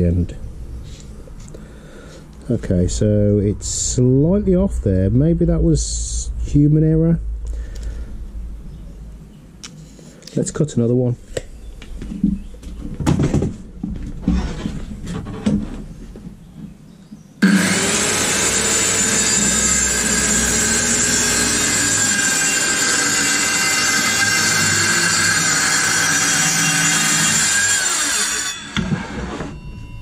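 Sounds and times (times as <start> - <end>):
circular saw cutting plywood: 17.4 - 29.6.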